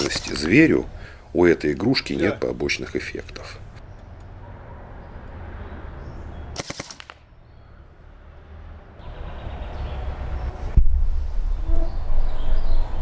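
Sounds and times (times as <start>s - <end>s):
airsoft gun firing: 6.6s - 7.3s
low wind rumble on microphone: 9.7s - 13.0s.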